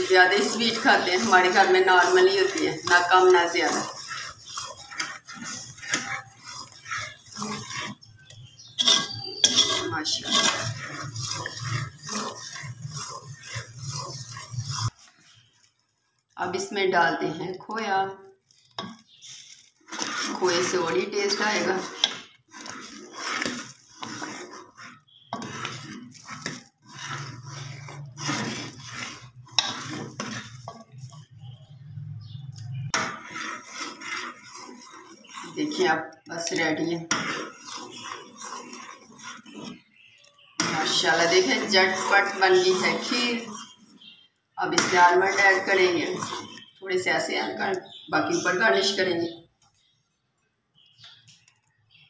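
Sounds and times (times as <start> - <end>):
metal spoon scraping a metal pot: 0.0 - 50.0.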